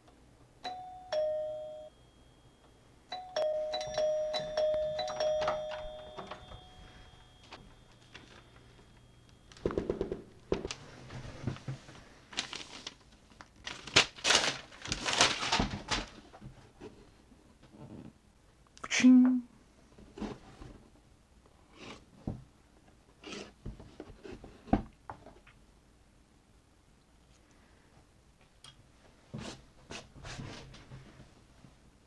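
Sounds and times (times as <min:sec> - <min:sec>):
two-note doorbell chime: 0:00.6 - 0:09.5
wrapping paper tearing: 0:12.3 - 0:16.2.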